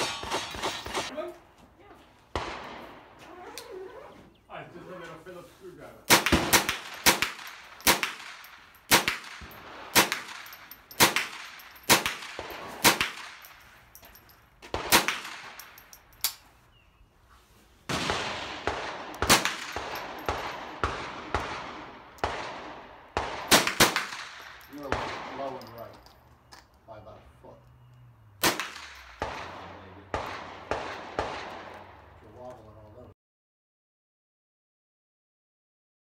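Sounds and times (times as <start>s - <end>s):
gunshots: 0.0s - 1.1s, 2.3s - 3.1s, 6.1s - 13.5s, 14.7s - 15.6s, 17.9s - 25.6s, 28.4s - 32.1s.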